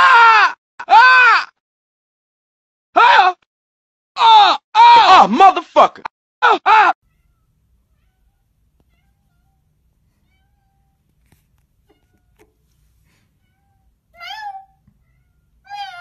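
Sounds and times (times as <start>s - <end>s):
cat meowing loudly: 13.4s - 16.0s.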